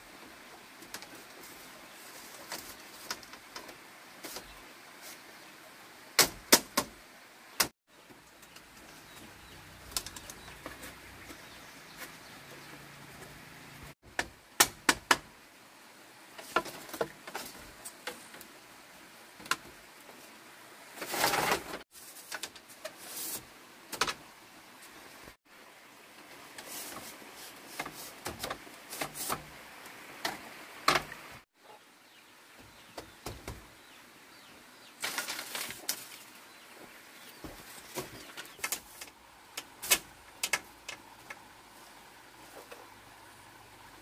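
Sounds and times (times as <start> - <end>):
bamboo strips rustling: 0.0 - 5.3, 7.6 - 15.2, 16.3 - 18.6, 19.4 - 25.4, 26.2 - 31.4, 34.9 - 43.4
bamboo strips clacking: 9.8 - 12.7, 35.0 - 36.3, 37.5 - 41.4.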